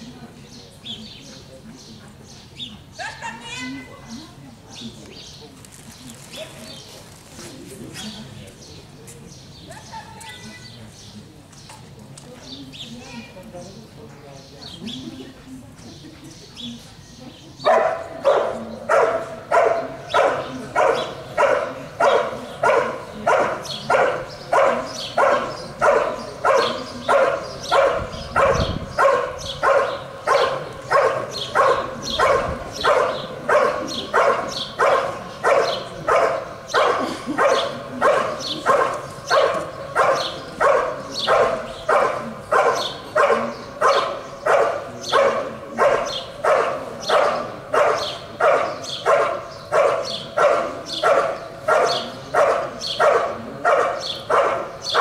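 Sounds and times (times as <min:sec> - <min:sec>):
dog barking steadily: 0:17.6 - 0:55.0.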